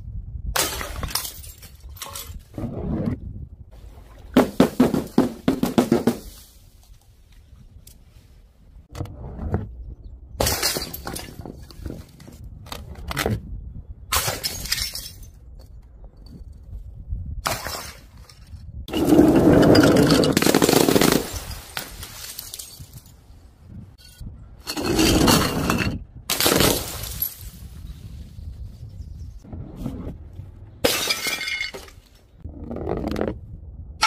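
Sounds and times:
glass jars smashing on paving: 0:00.6 - 0:02.3, 0:10.4 - 0:11.6, 0:14.2 - 0:15.4, 0:18.9 - 0:23.1, 0:24.0 - 0:27.5, 0:30.8 - 0:32.0.

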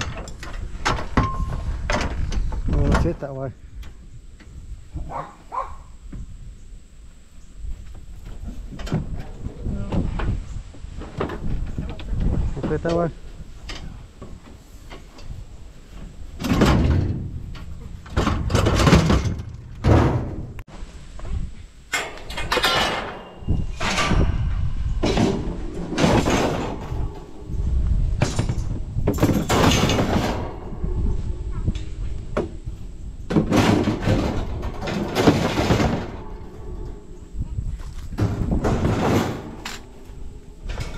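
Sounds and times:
sheet metal scraping and banging: 0:22.0 - 0:32.5, 0:33.3 - 0:37.5, 0:38.1 - 0:40.9.

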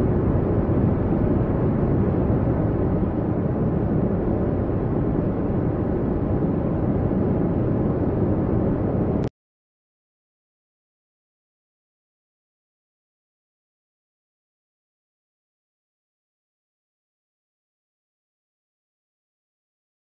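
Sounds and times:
steady low rumble: 0:00.0 - 0:09.3.

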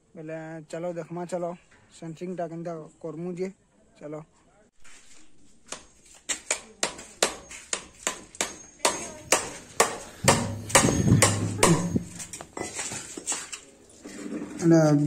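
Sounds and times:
hammer nailing wooden boards: 0:06.5 - 0:12.2.

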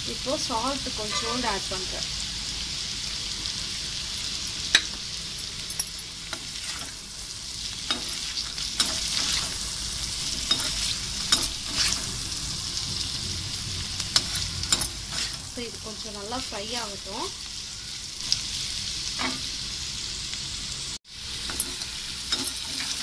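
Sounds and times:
food sizzling in hot oil: 0:00.0 - 0:23.0
metal spoon scraping pan: 0:01.0 - 0:01.5, 0:07.8 - 0:12.4, 0:14.0 - 0:15.5, 0:21.4 - 0:23.0.

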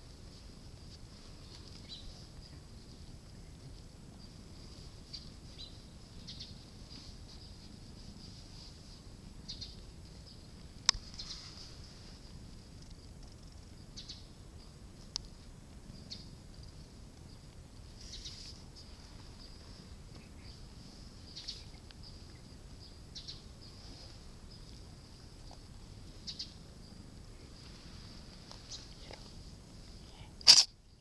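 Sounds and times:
night insects chirping: 0:09.2 - 0:31.0
sharp click: 0:30.4 - 0:30.7.

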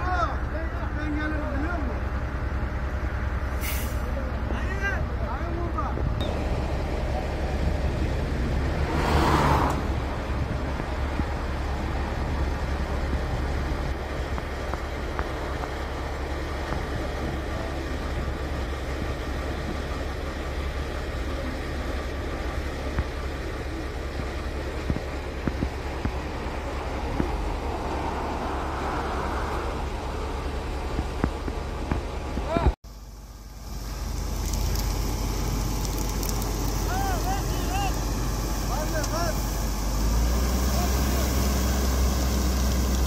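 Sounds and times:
road traffic rumble: 0:00.0 - 0:43.0
vehicle passing: 0:06.3 - 0:13.9, 0:26.4 - 0:31.2.

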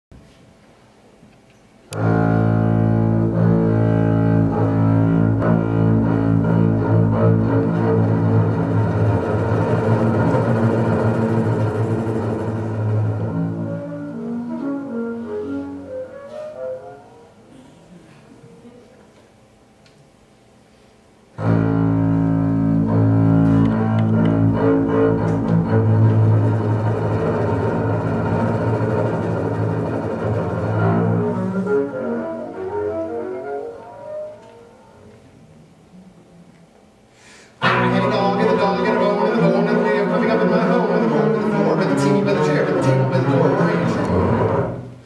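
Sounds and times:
bowed double bass note: 0:01.9 - 0:15.8, 0:21.4 - 0:34.2, 0:37.6 - 0:45.0.

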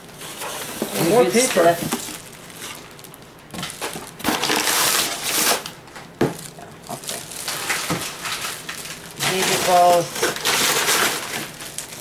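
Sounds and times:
plastic bag crinkling: 0:00.9 - 0:05.8, 0:06.4 - 0:12.0
plastic bottles handled: 0:06.2 - 0:12.0.

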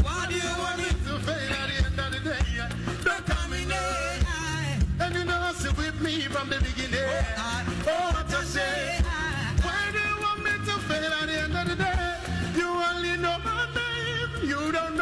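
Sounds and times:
live band playing: 0:00.0 - 0:15.0
two men singing: 0:00.0 - 0:15.0.

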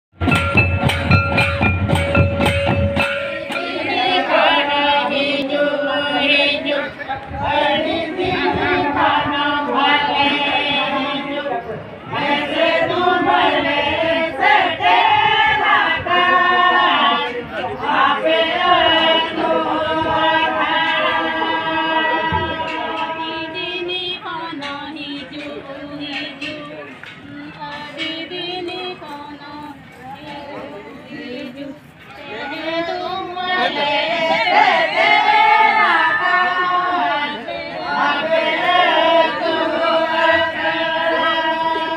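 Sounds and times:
drums beaten in steady rhythm: 0:00.1 - 0:03.8
women singing: 0:03.3 - 0:41.9.

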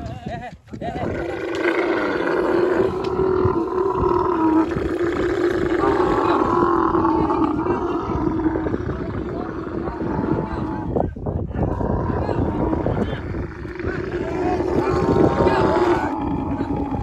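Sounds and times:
camel bellowing: 0:00.9 - 0:11.0, 0:11.6 - 0:17.0.

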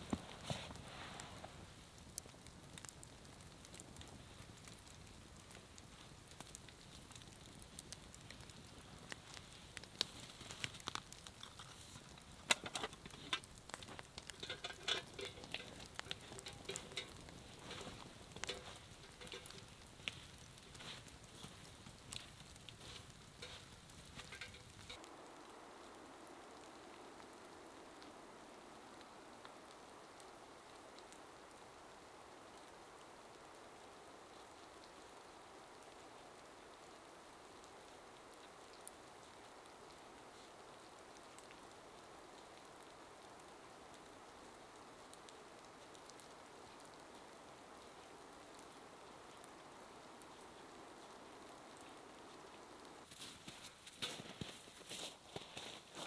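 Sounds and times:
campfire crackling: 0:00.0 - 0:56.0
faint open-air hiss: 0:00.0 - 0:56.0
footsteps on snow: 0:53.1 - 0:56.0.

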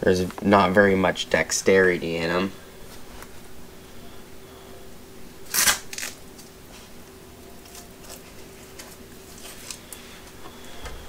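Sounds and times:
leather gloves scraping rip: 0:05.5 - 0:06.5.

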